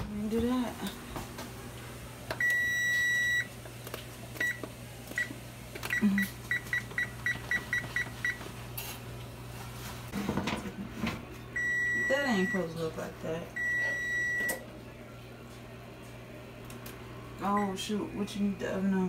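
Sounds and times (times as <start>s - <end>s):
oven control panel beeping: 2.3s - 3.5s, 4.4s - 8.4s, 11.6s - 12.7s, 13.6s - 14.6s.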